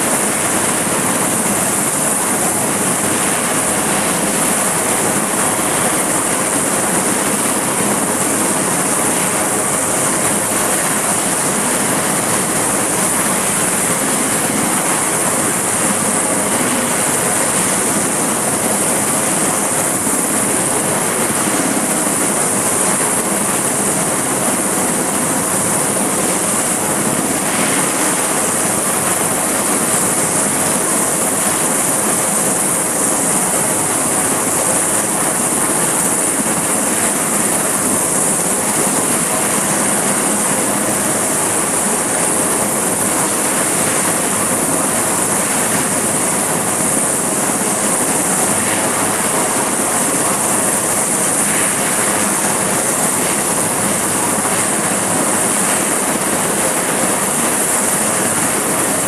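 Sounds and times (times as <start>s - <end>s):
helicopter engines and rotor: 0.0s - 59.0s.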